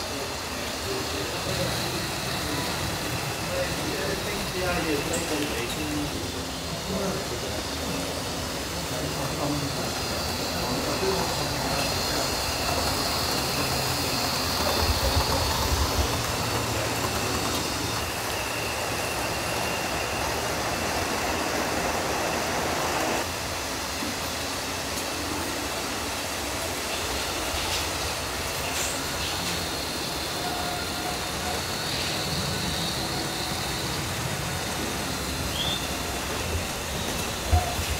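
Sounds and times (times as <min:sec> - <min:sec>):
model train wheels rattling: 0:00.9 - 0:19.6.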